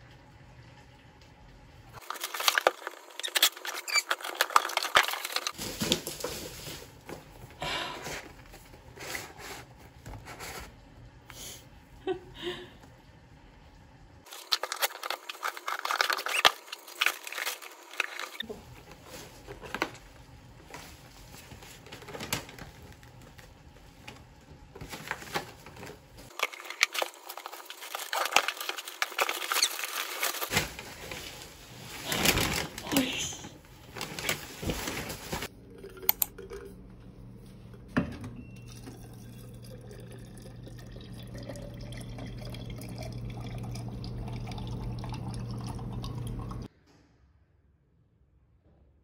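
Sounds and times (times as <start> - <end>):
small objects rustling and clicking: 2.0 - 7.2, 14.3 - 20.0, 24.8 - 33.4.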